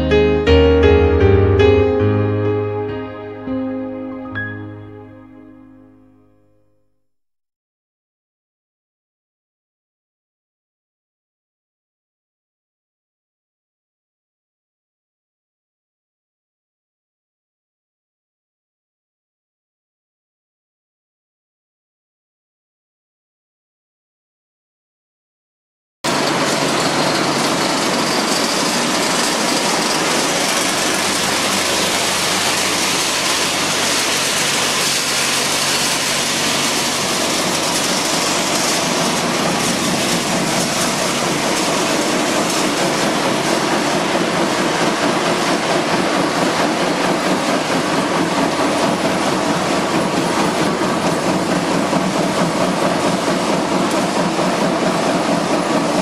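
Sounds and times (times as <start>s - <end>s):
machinery clattering: 26.1s - 56.0s.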